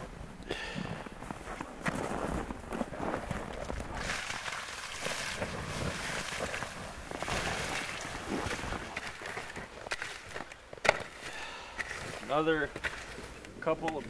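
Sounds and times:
water hissing on hot coals: 3.9s - 10.4s.

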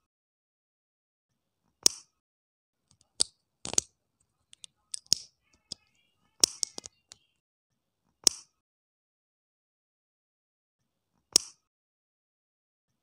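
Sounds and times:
plastic toy pieces clicking: 2.9s - 7.3s.

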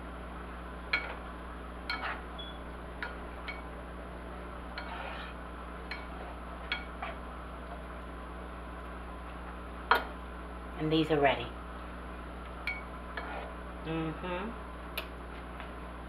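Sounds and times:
spatula scraping pan: 1.9s - 2.3s, 4.7s - 7.9s, 13.1s - 13.6s.

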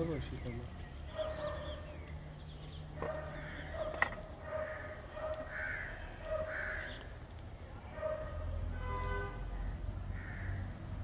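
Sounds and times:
crows cawing: 3.0s - 7.2s, 10.1s - 10.8s.

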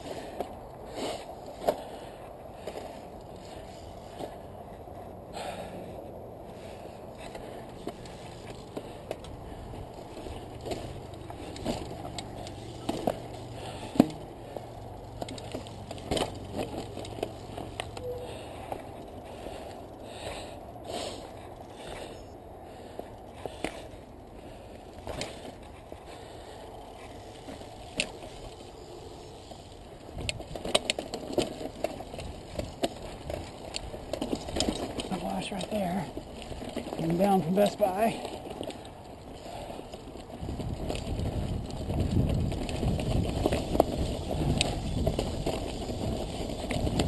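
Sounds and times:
bike clattering over loose rock: 7.8s - 18.0s, 27.4s - 47.0s.

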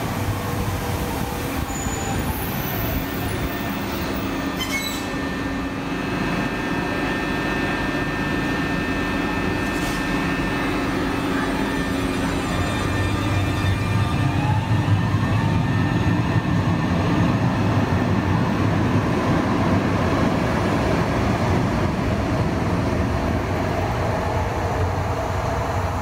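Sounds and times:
tram electric drive humming and whining: 0.0s - 26.0s
faint high squeal: 1.6s - 5.4s.

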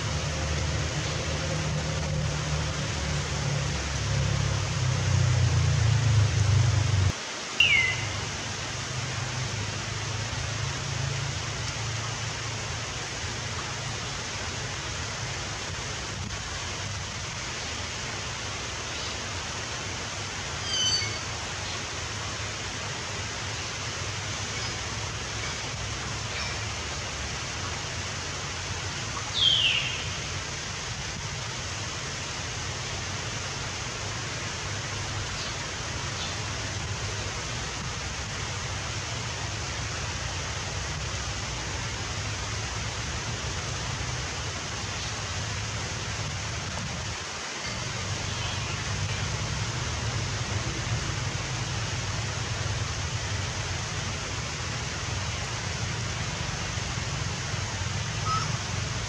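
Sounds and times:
steady rushing noise: 0.0s - 20.6s.

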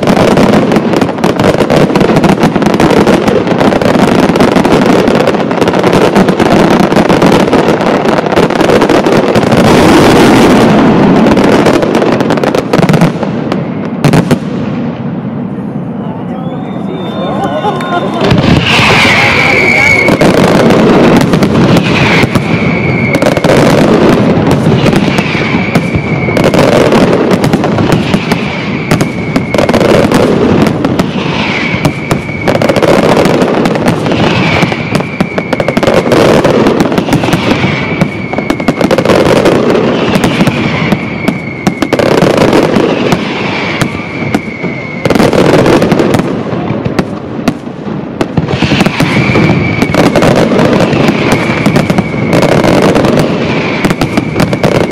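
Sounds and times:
short falling high tone: 15.8s - 20.1s
firework shells bursting: 17.6s - 47.3s, 48.2s - 54.9s.

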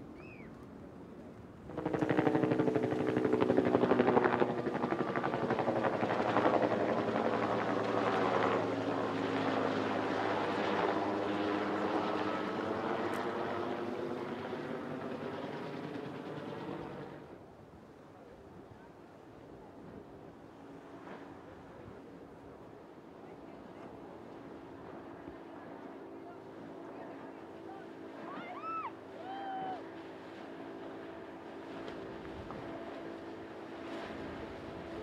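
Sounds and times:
loud pulsing engine: 1.6s - 4.4s.

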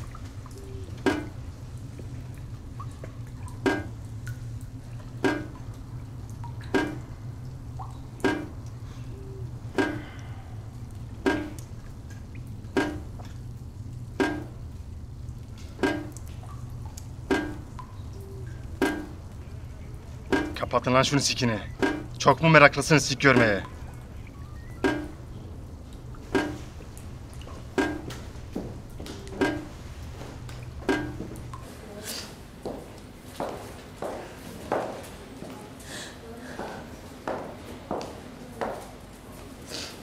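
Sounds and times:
water drops plinking: 0.0s - 31.7s
steady low hum: 0.0s - 33.4s
faint drips: 0.0s - 34.2s.

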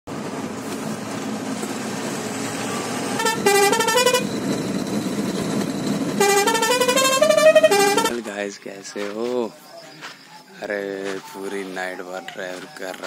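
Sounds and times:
truck road and engine noise: 0.1s - 13.0s
musical horn tune: 3.2s - 4.3s, 6.2s - 8.2s.

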